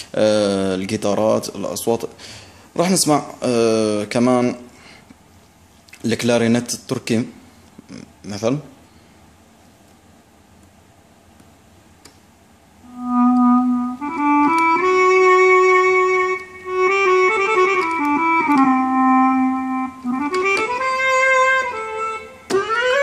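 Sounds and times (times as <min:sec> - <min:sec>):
keyboard clarinet melody: 0:12.8 - 0:23.0.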